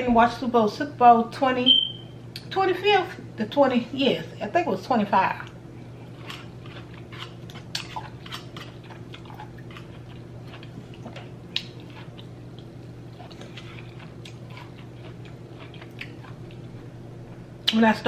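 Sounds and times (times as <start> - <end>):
steady low hum: 0.0 - 18.0
person chewing food: 5.4 - 17.8.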